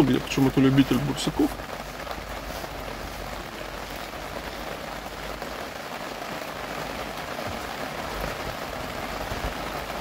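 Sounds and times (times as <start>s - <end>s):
steady rain hiss: 0.0s - 10.0s.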